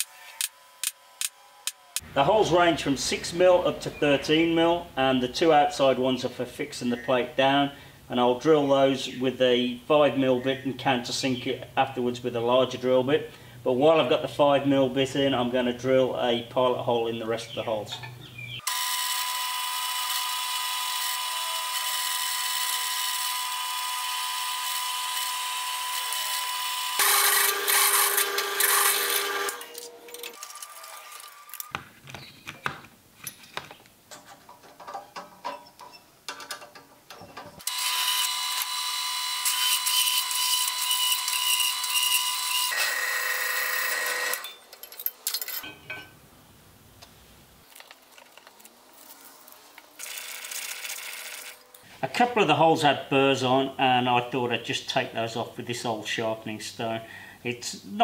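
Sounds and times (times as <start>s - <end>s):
drill press motor running: 18.7s - 29.8s, 37.6s - 44.4s
drill bit cutting steel: 18.7s - 29.9s, 37.6s - 44.5s.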